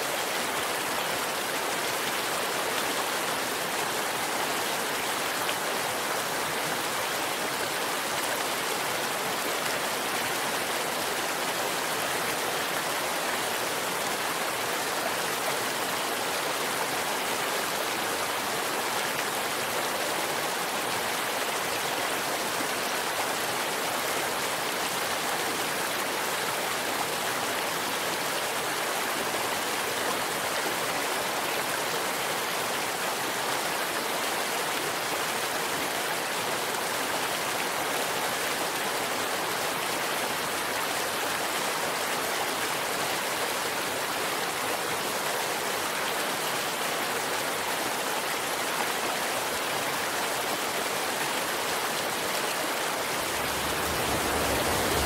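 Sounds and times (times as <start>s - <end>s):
stream water rushing over rocks: 0.0s - 55.0s.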